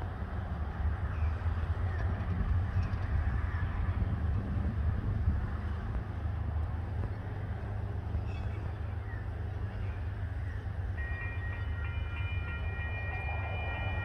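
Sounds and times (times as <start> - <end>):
steady low rumble: 0.0 - 11.0
level crossing warning bells: 10.0 - 14.0.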